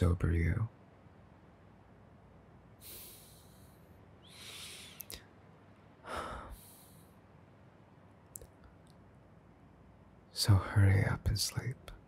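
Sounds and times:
man breathing and sighing: 2.8s - 5.3s, 6.0s - 7.2s
faint clicks: 8.3s - 9.0s.

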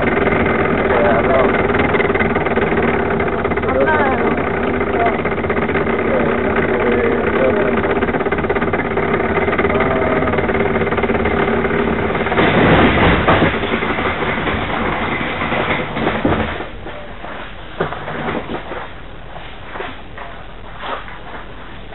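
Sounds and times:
small wheels rolling and rattling: 0.0s - 21.9s
knocks: 7.8s - 17.0s.

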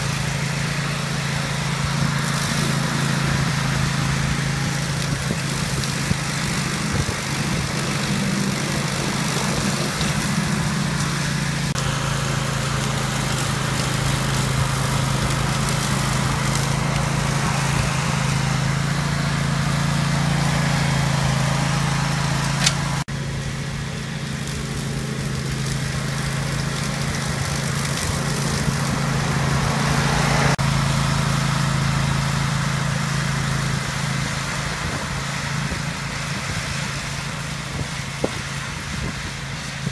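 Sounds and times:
grass cutting noise: 0.0s - 39.9s
mower engine running: 0.0s - 39.9s.

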